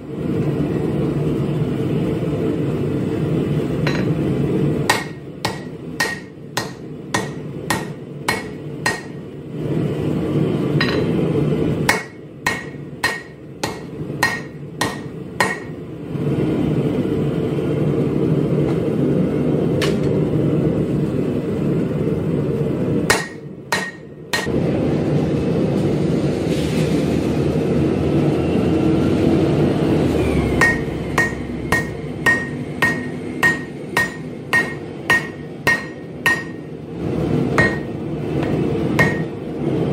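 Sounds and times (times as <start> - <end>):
high anvil ring: 3.8 - 4.2, 30.6 - 36.7, 37.6 - 39.4
hammer striking hot steel on anvil: 3.8 - 9.4, 10.8 - 11.2, 11.8 - 15.8, 19.8 - 20.2, 23.0 - 24.6, 30.6 - 36.8, 37.5 - 39.5.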